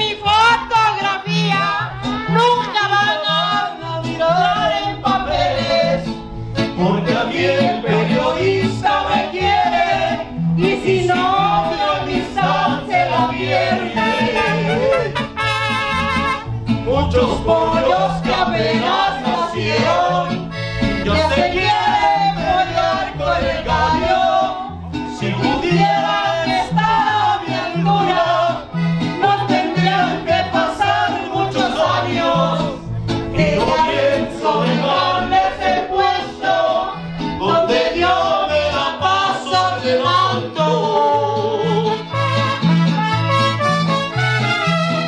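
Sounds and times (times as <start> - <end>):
woman singing into a microphone: 0.0 - 6.0
accordion: 0.0 - 45.0
bass guitar alternating bass line: 0.0 - 45.0.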